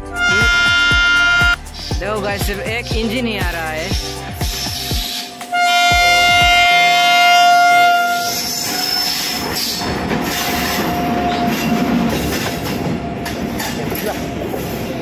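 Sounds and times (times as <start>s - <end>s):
locomotive horn blast: 0.0s - 1.6s, 5.5s - 9.4s
locomotive rumbling on track: 0.0s - 15.0s.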